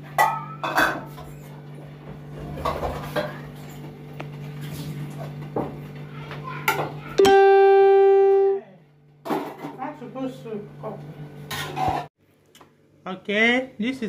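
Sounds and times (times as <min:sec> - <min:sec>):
loud held musical note: 0:07.2 - 0:08.8.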